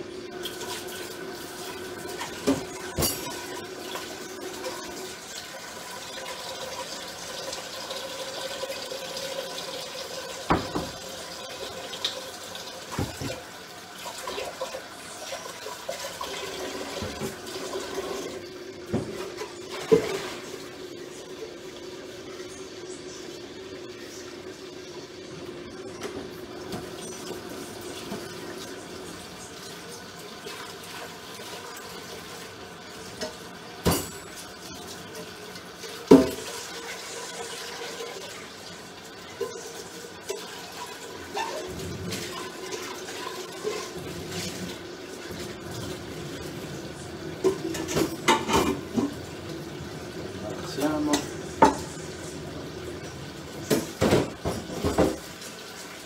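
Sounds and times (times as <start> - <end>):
tap water running: 0.0 - 56.0
dishes and cutlery clanking: 2.2 - 3.6.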